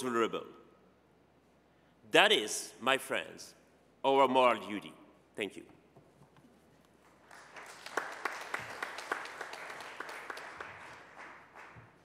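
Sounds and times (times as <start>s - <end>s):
audience applauding: 7.0s - 12.0s.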